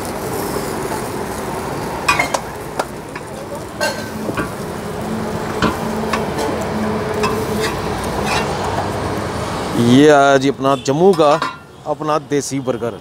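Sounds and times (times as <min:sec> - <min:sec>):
steady noisy background: 0:00.0 - 0:13.0
spatula tapping and scraping griddle: 0:02.1 - 0:04.6, 0:05.4 - 0:09.0, 0:11.1 - 0:11.7.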